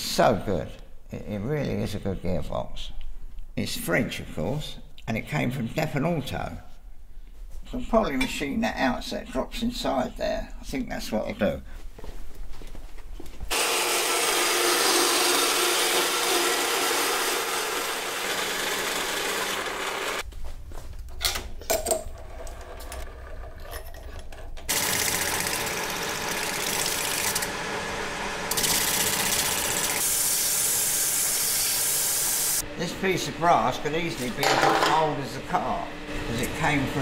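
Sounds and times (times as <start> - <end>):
metal lathe cutting: 13.5 - 20.2, 24.7 - 32.6.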